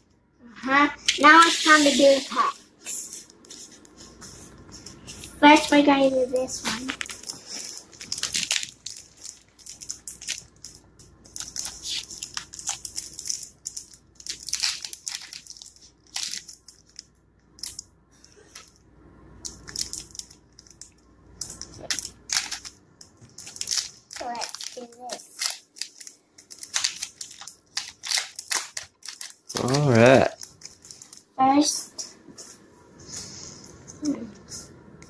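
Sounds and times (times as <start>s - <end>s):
foil wrapper crinkling and tearing: 6.7s - 17.8s, 19.4s - 31.3s.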